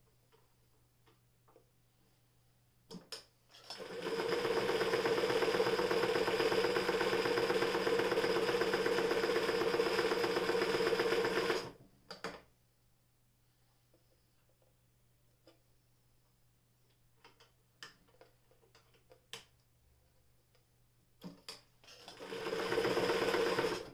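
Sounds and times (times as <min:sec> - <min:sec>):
sewing machine clicks: 0:03.5 - 0:11.7, 0:21.9 - 0:23.9
sewing machine stitching: 0:03.5 - 0:11.8, 0:21.9 - 0:23.9.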